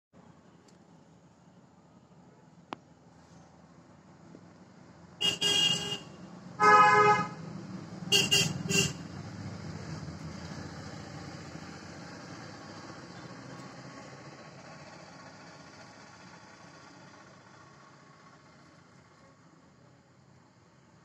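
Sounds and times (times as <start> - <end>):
low vehicle hum: 0.2 - 21.0
vehicle horn honking: 5.2 - 7.4, 8.1 - 9.0.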